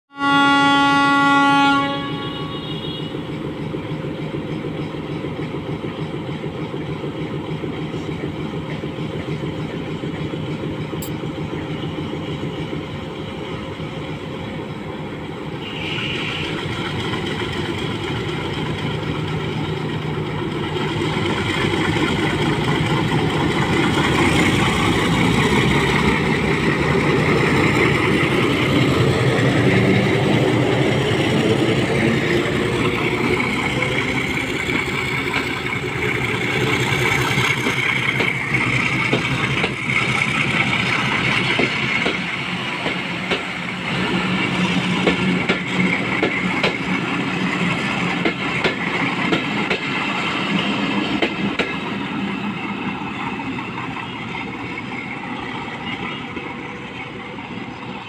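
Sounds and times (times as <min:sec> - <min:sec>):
train horn blast: 0:00.1 - 0:03.3, 0:15.6 - 0:16.7
diesel locomotive engine: 0:00.1 - 0:58.0
train wheels rolling on rails: 0:02.3 - 0:58.0.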